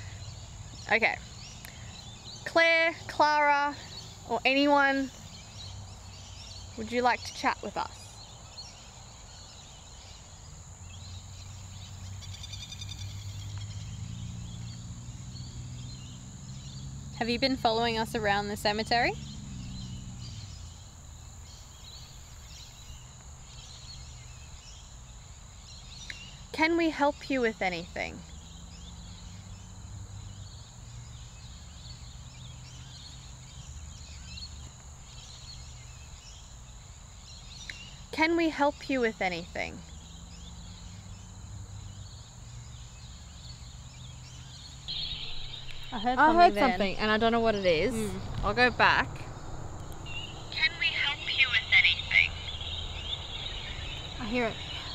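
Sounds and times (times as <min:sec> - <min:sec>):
distant birds chirping: 0:00.0 - 0:54.9
thin steady hiss: 0:00.0 - 0:54.9
steady low rumble: 0:13.2 - 0:25.8, 0:44.0 - 0:54.9
steady high hiss: 0:39.6 - 0:54.9
rapid chirping trill: 0:44.5 - 0:54.9
low hum: 0:44.9 - 0:54.9.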